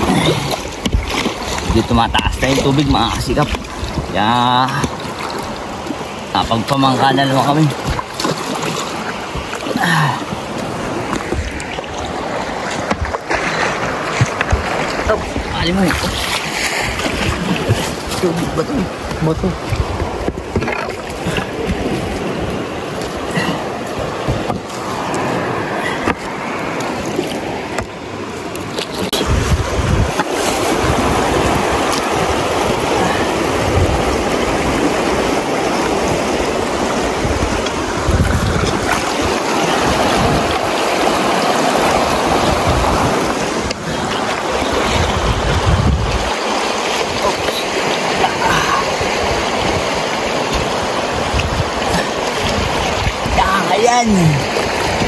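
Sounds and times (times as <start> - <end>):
wind buffeting microphone: 0.0 - 6.0, 7.7 - 26.8, 28.6 - 47.5, 48.2 - 55.0
river water rushing: 0.0 - 55.0.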